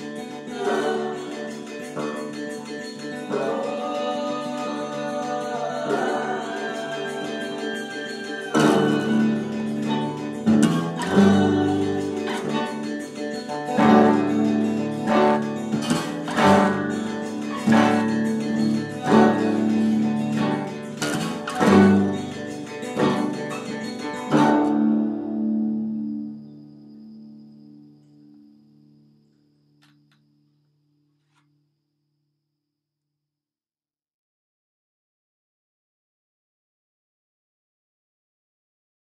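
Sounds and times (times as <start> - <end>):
plucked guitar music: 0.0 - 28.5.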